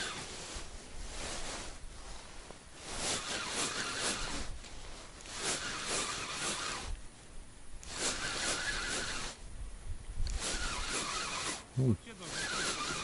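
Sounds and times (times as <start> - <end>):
fishing reel cranking: 3.0 - 4.5, 5.2 - 7.0, 7.8 - 9.4, 10.2 - 11.6, 12.2 - 13.0.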